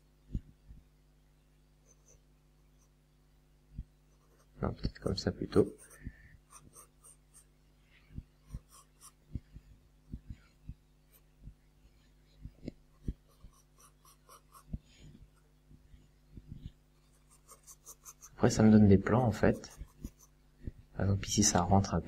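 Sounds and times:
pencil scratching on paper: 1.8 - 2.2, 4.1 - 4.6, 5.6 - 7.5, 8.4 - 9.3, 12.9 - 15.5, 17.0 - 20.4.

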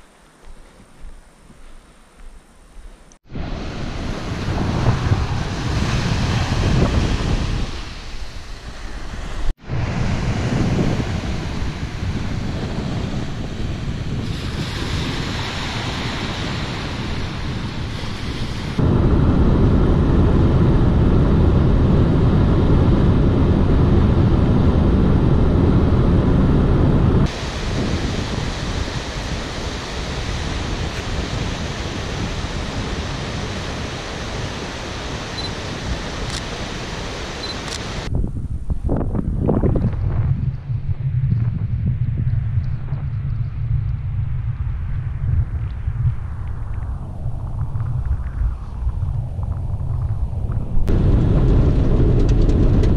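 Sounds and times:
wind on microphone: 0.0 - 52.9
waves washing onto a beach: 3.2 - 19.2, 27.2 - 38.1
rushing stream: 27.3 - 38.1.

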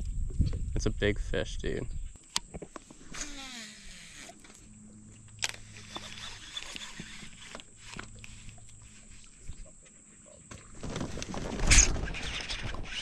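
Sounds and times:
fishing reel ticking: 3.1 - 4.4, 5.4 - 8.8.

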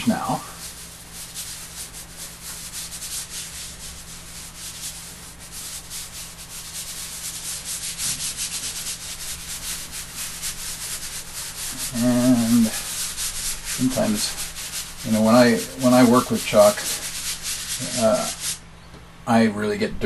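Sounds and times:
fingertips rubbing chalk: 0.0 - 18.6.

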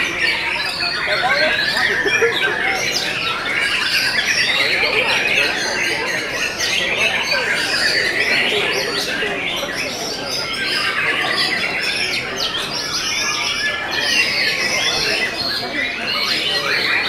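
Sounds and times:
birds singing whistled notes: 0.0 - 17.0.

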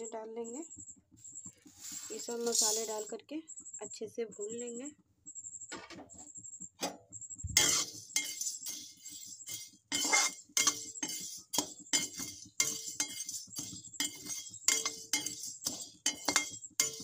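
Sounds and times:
metal ladle scraping a pan: 1.7 - 3.1, 7.6 - 17.0.

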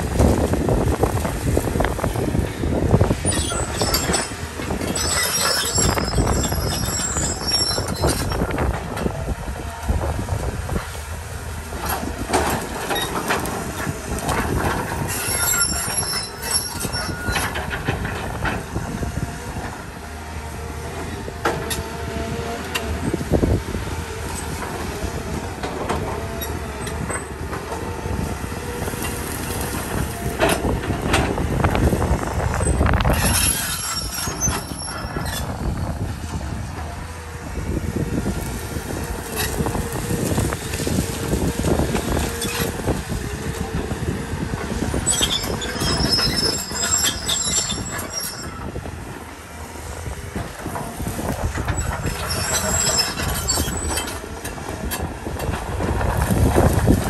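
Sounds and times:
excavator diesel engine under load: 0.0 - 57.0
high metallic screeching: 3.2 - 8.5, 15.0 - 17.6, 32.6 - 35.9, 45.0 - 48.6, 51.8 - 54.2.

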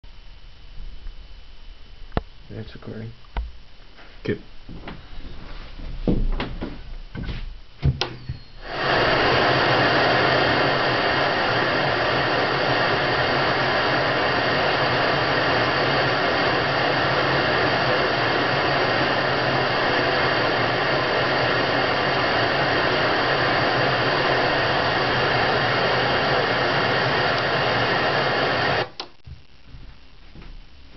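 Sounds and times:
tv static hiss: 0.1 - 30.9.

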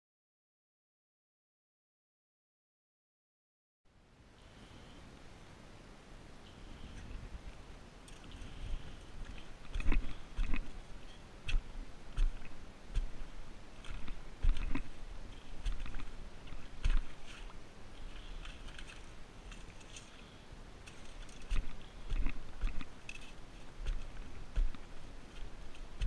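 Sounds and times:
wet sand and stones crunching: 8.3 - 20.2, 20.9 - 26.0.

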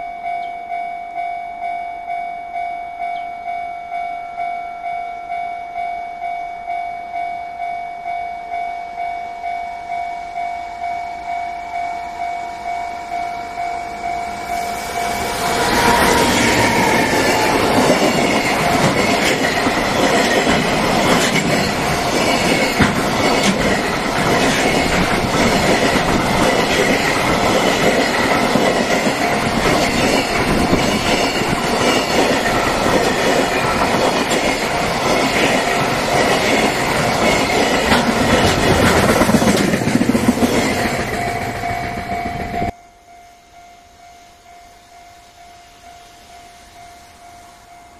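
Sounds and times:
level-crossing bell dinging: 0.0 - 38.6, 39.2 - 47.9
train wheels on rails: 11.6 - 42.8
clacking over rail joints: 16.6 - 41.3.

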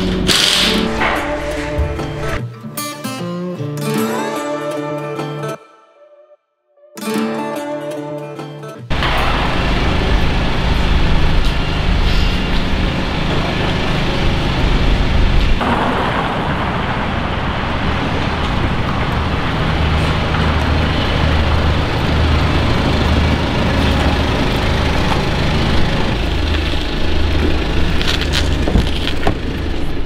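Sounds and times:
car engine running: 8.9 - 15.9, 16.6 - 30.0.

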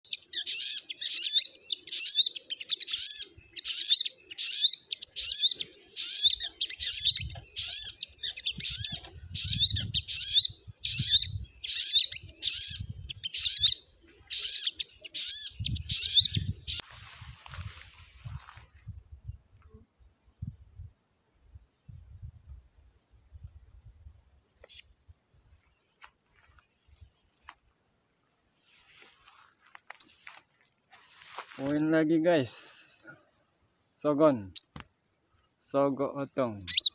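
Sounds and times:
sunbird call notes: 0.0 - 18.6, 31.0 - 33.2, 36.0 - 36.9
rustling: 28.6 - 31.9.

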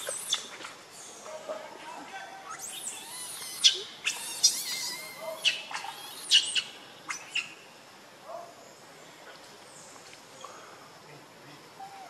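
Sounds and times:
baby monkey shrieking: 2.4 - 7.6.

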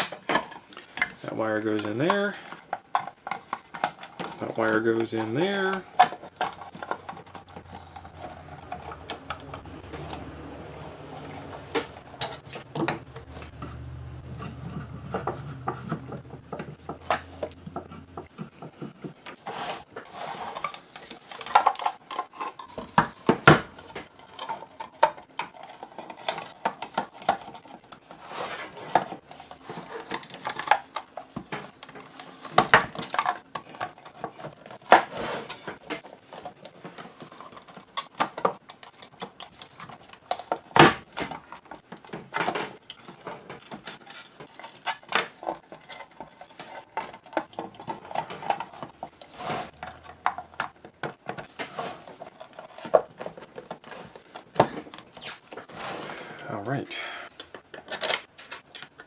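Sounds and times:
cables shifting: 0.2 - 34.9.

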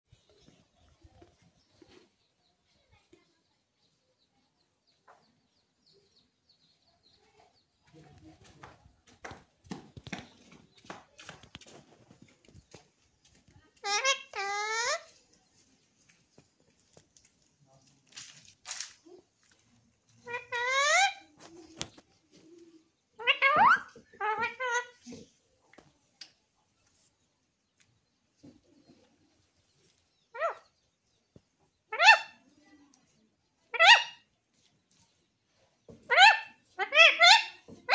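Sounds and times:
parakeet chirps and squawks: 13.8 - 15.2, 20.2 - 21.3, 23.2 - 25.0, 30.3 - 30.7, 31.9 - 32.4, 33.7 - 34.3, 36.1 - 37.9.

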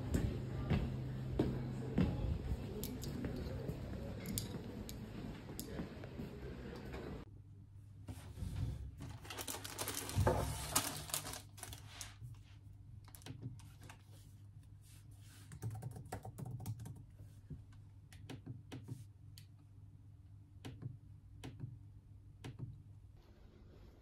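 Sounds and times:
plastic packaging crinkling: 9.0 - 12.2.

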